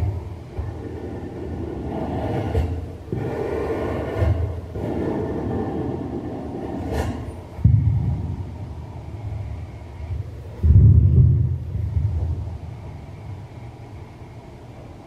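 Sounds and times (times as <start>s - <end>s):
heavy thump: 7.0s - 9.4s, 10.1s - 12.6s
amplified low rumbling noise: 7.5s - 15.0s.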